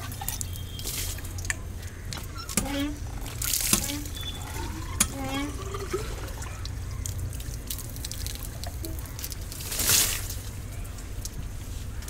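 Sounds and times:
water trickling and dripping: 0.0s - 11.7s
water splash: 7.3s - 10.6s.

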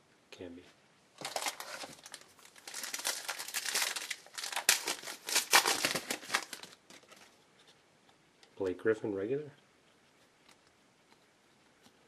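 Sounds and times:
wrapper crinkling and tearing: 1.2s - 7.3s.

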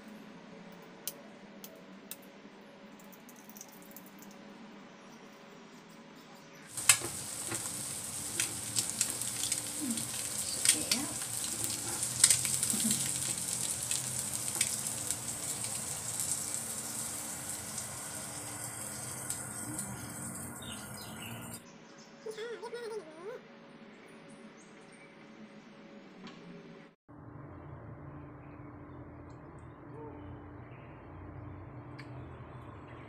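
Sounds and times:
food sizzling on grill pan: 6.7s - 21.6s
grease crackles: 6.7s - 21.6s.

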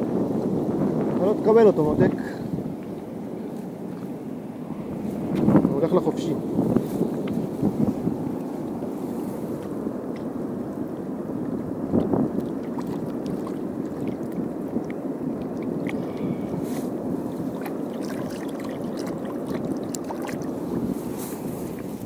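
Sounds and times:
water rushing against rocks: 11.4s - 22.0s
small splashes and clicks: 12.0s - 16.1s, 17.5s - 20.5s.

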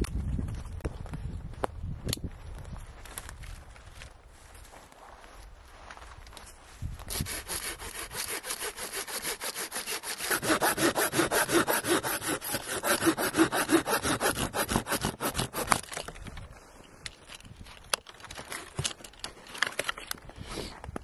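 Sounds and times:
hand saw cutting branch: 7.1s - 16.1s.

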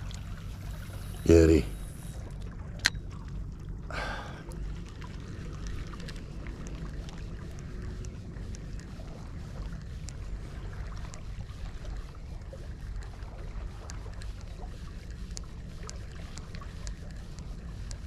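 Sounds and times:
water lapping at rocks: 0.0s - 18.0s
fishing reel ticking: 13.7s - 18.0s.

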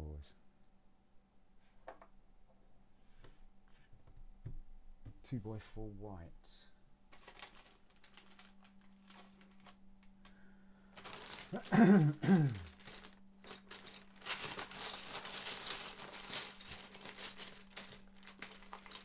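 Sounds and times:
plastic bricks clattering: 7.1s - 9.8s, 11.0s - 19.0s.

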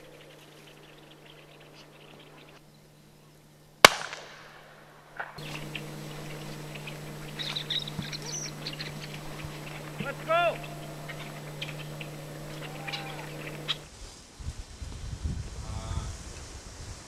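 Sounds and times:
shotgun shot with echo: 3.8s - 5.4s
faint high chirps: 5.4s - 13.8s.

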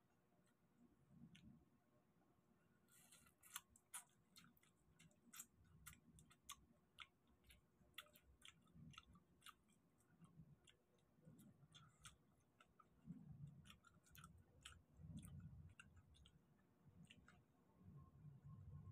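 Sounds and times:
prawn shells being peeled: 2.9s - 17.4s
chewing: 2.9s - 18.0s.

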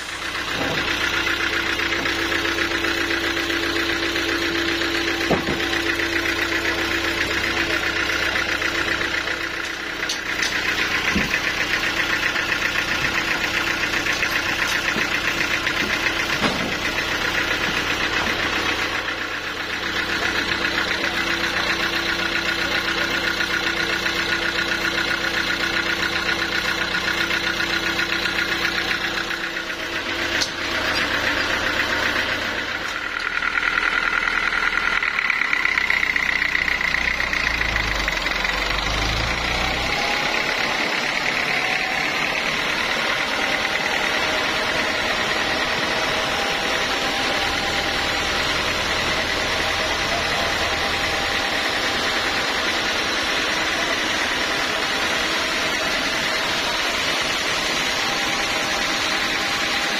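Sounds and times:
stationary engine running: 0.0s - 59.9s
sharp knocks: 5.2s - 5.7s.

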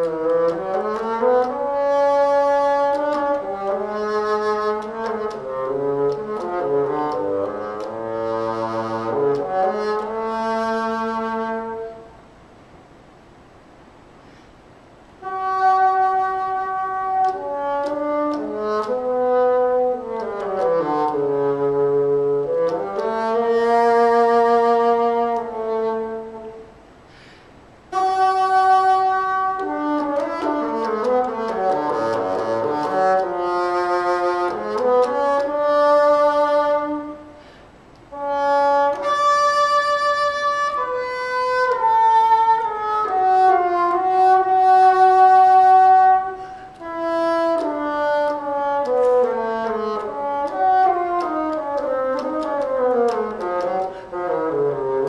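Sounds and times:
bassoon solo: 0.0s - 12.2s, 15.2s - 26.9s, 27.9s - 55.0s.

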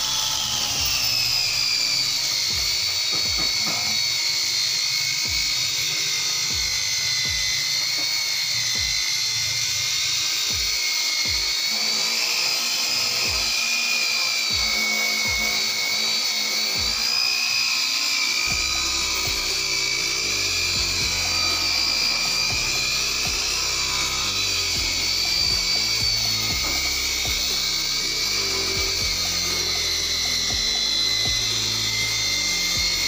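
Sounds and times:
music with bass beat: 0.0s - 3.6s, 6.4s - 7.7s, 8.8s - 9.1s, 18.4s - 33.0s
rotary polisher motor whining: 0.0s - 33.0s.

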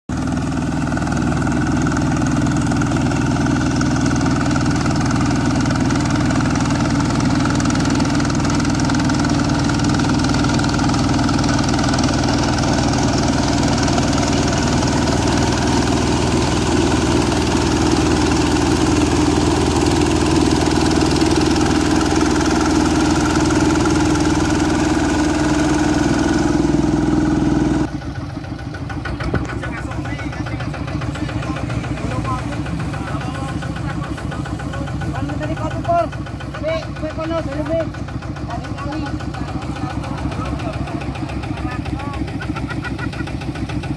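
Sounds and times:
combine harvester engine drone: 0.1s - 43.9s.

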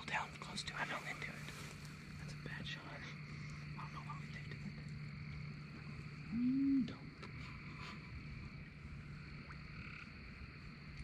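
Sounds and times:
high-pitched night chorus: 0.0s - 11.0s
bullfrog call: 6.2s - 7.0s, 9.4s - 10.3s.

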